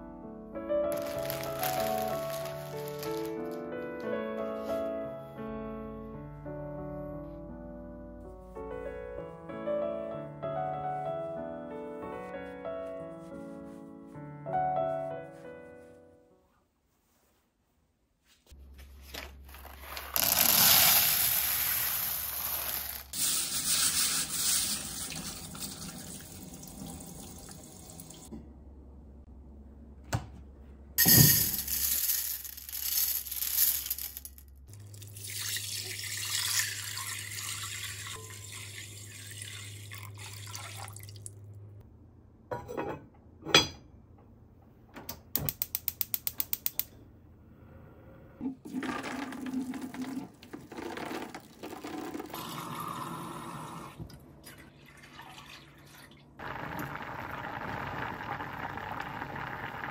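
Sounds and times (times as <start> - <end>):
tap water pouring onto beans: 0.9 - 3.4, 34.9 - 41.3.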